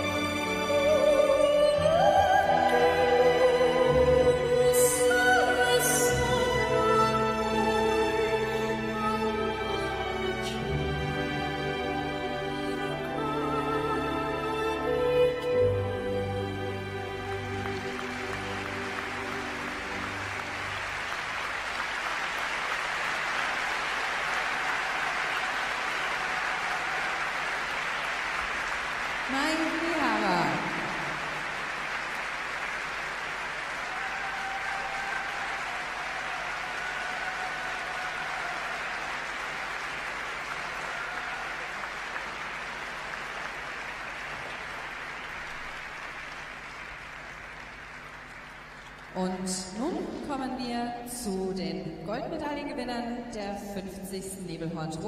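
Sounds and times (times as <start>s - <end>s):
music: 0.0s - 55.0s
audience applause: 16.4s - 49.2s.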